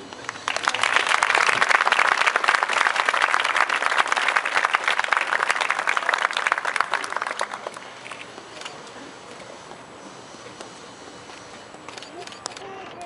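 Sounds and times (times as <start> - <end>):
crowd applauding: 0.2 - 7.9.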